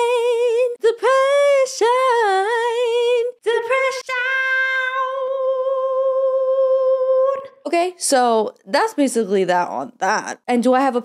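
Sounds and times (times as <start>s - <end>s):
woman singing unaccompanied: 0.0s - 7.6s.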